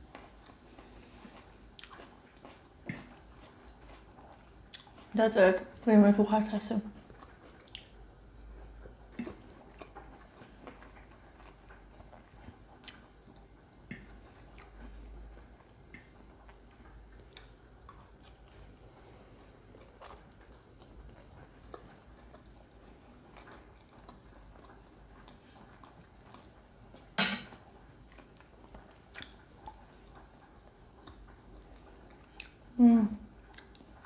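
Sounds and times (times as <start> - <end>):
quiet chewing: 0.1 - 5.2, 6.9 - 34.0
mouth clicks and smacks: 29.1 - 29.8, 32.3 - 32.6.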